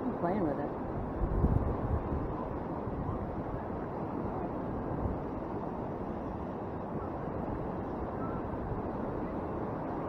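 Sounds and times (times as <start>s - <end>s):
ocean surf washing: 0.0s - 10.0s
wind rushing over microphone: 0.0s - 10.0s.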